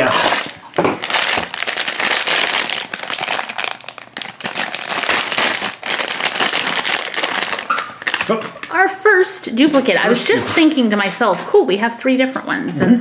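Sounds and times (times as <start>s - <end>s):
foil bag crinkling: 0.0s - 8.8s.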